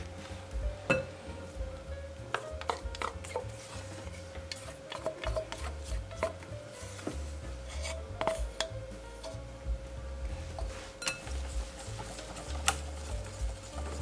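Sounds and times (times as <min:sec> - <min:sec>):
metal pot clinking on glass bowl: 0:11.0 - 0:11.3.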